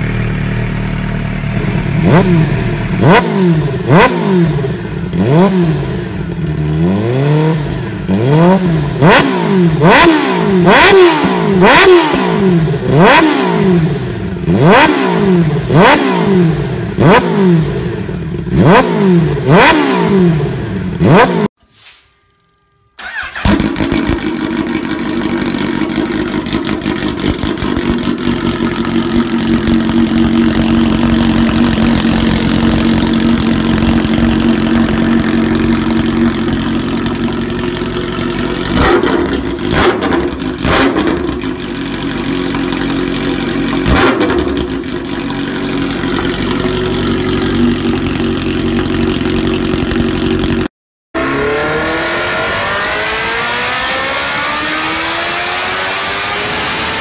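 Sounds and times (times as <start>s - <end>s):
motorcycle engine idling: 0.0s - 4.0s, 23.0s - 50.7s.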